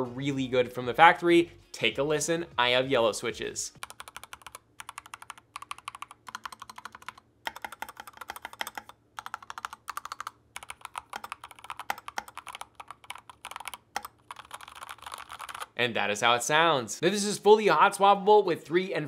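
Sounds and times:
mechanical keyboard typing: 3.8s - 15.8s.

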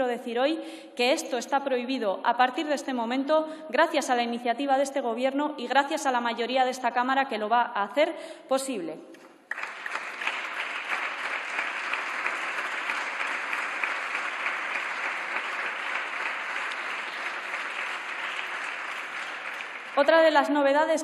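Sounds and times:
crowd applauding: 9.5s - 20.5s.

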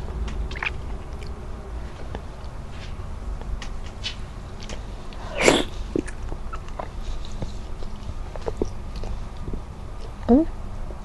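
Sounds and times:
mouth chewing and smacking: 0.2s - 1.4s, 5.9s - 10.3s.

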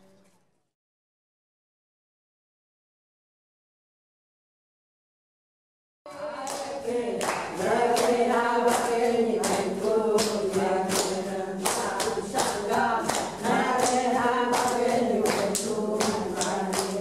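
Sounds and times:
rhythmic hand clapping: 6.1s - 17.0s
women singing without instruments: 6.1s - 17.0s.

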